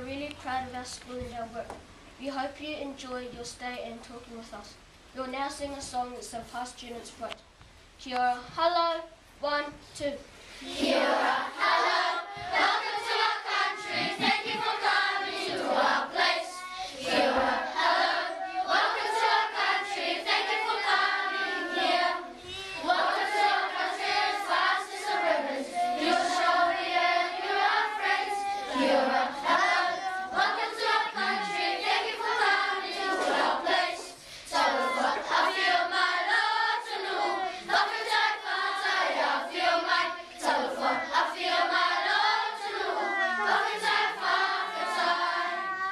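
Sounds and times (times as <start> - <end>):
children's choir singing: 10.6 - 45.9.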